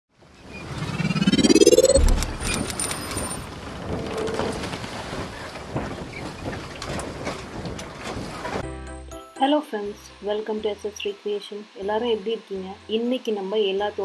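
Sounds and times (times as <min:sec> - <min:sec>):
rising sweep: 0:00.6 - 0:02.8.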